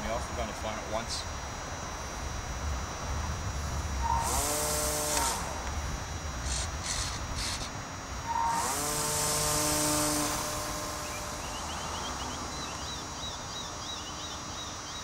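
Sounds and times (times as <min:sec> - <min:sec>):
model plane motor whining: 0:04.0 - 0:05.8, 0:06.4 - 0:12.4.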